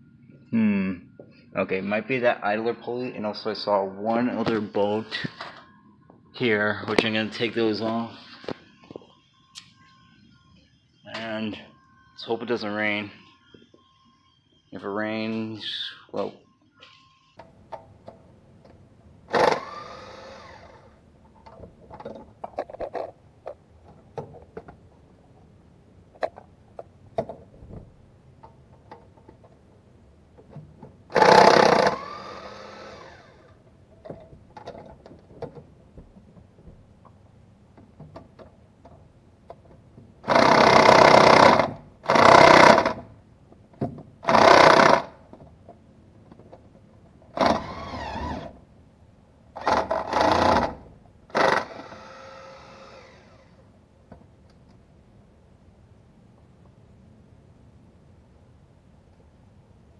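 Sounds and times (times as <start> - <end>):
motor spinning freely: 19.3 - 20.9, 31.1 - 33.5, 51.4 - 53.6.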